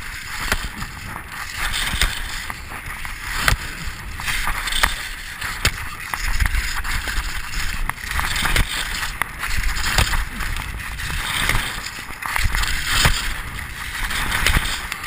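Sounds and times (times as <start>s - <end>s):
skis scraping on snow: 0.0s - 15.0s
wind rumbling on microphone: 0.0s - 15.0s
sharp clicks and knocks: 0.3s - 15.0s.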